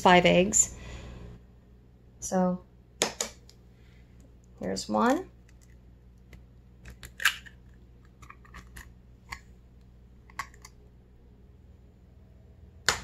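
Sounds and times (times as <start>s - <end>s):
egg cracking on bowl rim: 5.4s - 9.5s, 10.2s - 10.8s.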